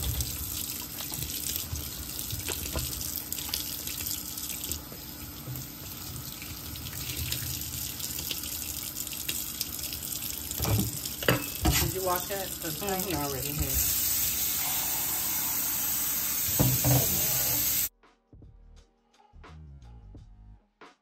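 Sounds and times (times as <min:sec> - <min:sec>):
faucet running water into sink: 0:00.0 - 0:17.9.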